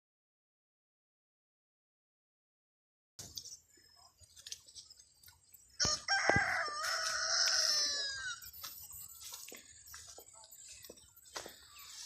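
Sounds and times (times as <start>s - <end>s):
rooster crowing: 5.8s - 8.4s.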